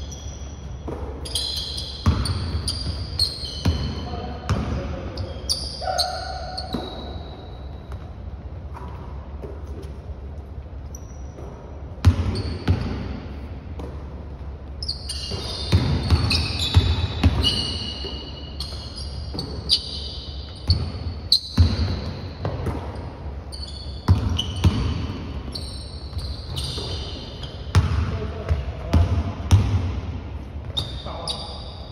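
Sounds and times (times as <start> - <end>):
sneaker squeaks: 0.0 - 29.7, 30.4 - 31.9
basketball bouncing on floor: 0.6 - 4.9, 11.3 - 13.2, 13.8 - 14.5, 15.2 - 17.6, 20.6 - 23.1, 24.1 - 25.3, 27.7 - 30.0.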